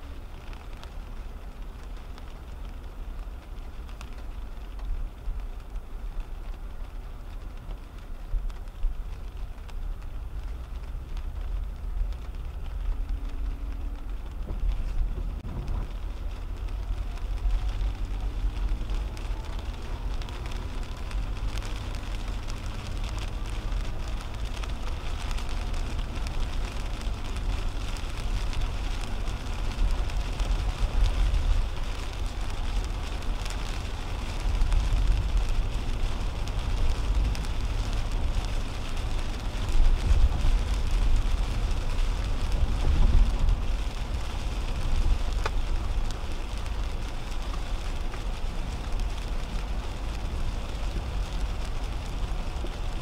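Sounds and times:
rain on windshield: 0:00.0 - 0:53.0
road and tyre rumble: 0:00.0 - 0:53.0.

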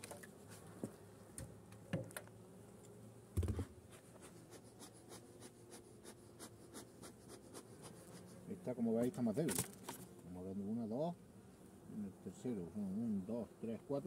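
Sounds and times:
thump: 0:03.4 - 0:03.7.

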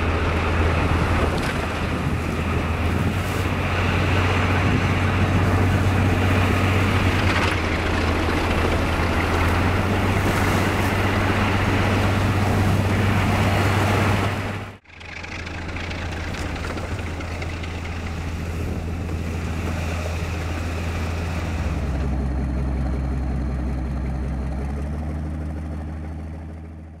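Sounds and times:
rush of snow noise: 0:00.0 - 0:14.8, 0:16.0 - 0:22.2
train low drone: 0:00.0 - 0:27.0.

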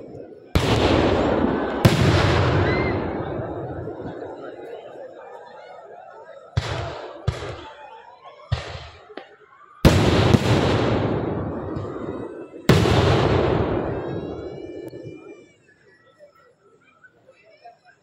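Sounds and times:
rumbling echo: 0:00.0 - 0:04.6, 0:09.9 - 0:15.3
fireworks bangs: 0:00.0 - 0:04.9, 0:06.5 - 0:07.9, 0:08.5 - 0:15.5.

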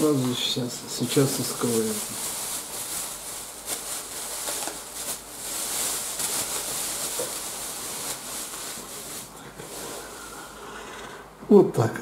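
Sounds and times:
clay wrapping rustling: 0:01.1 - 0:10.5.

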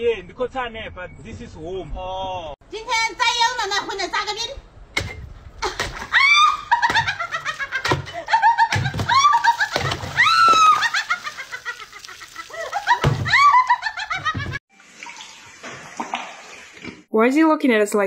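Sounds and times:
woman shrieking and laughing: 0:05.6 - 0:14.4.

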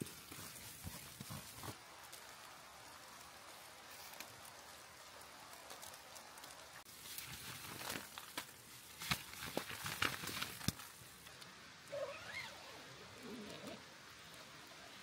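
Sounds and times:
tent fabric squeak: 0:11.9 - 0:12.7.

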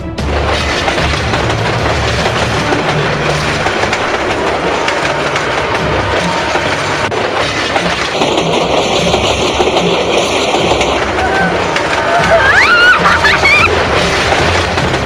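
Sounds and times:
passenger train passing: 0:00.0 - 0:15.0.

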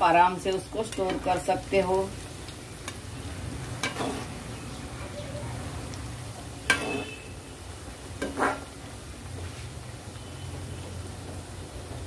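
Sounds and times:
dough sizzling in hot oil: 0:00.0 - 0:12.0
metal spoon clinking against pan: 0:03.8 - 0:04.3, 0:06.7 - 0:07.2.

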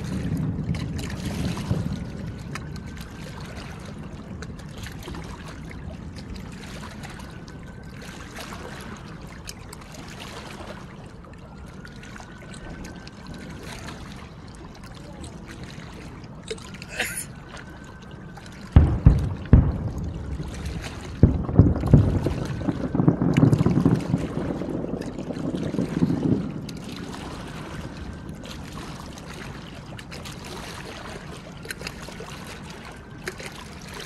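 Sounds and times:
water lapping: 0:00.0 - 0:34.0
firework bang: 0:18.8 - 0:26.5
distant firework pops: 0:18.8 - 0:26.8.

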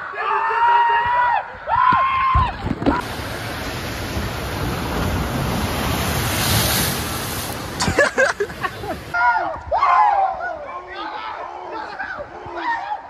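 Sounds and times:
water rushing down a waterslide: 0:02.2 - 0:10.2
voices: 0:07.8 - 0:13.0.

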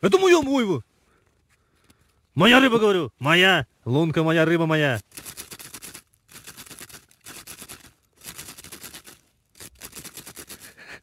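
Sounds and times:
fox scratching and digging snow: 0:04.9 - 0:10.8.

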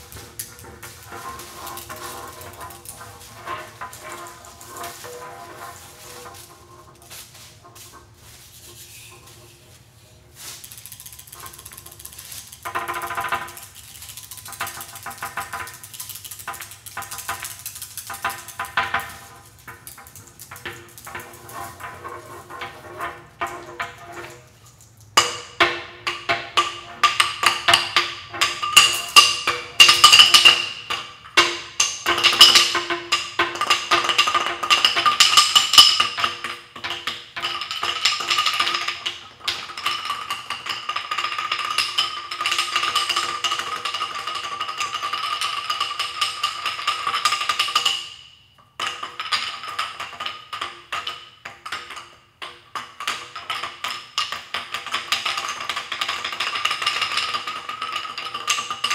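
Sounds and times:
sticks beating ringing stone slab: 0:25.2 - 0:48.0.

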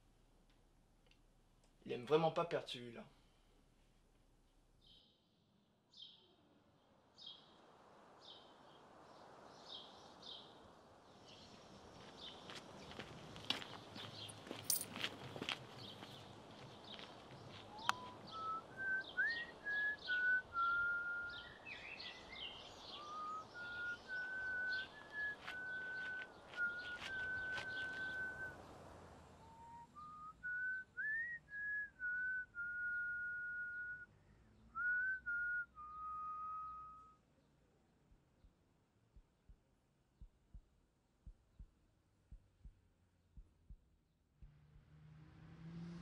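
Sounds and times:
birds chirping: 0:08.2 - 0:33.9
person whistling a slow tune: 0:17.7 - 0:21.5, 0:22.9 - 0:28.6, 0:29.4 - 0:34.1, 0:34.8 - 0:37.2.

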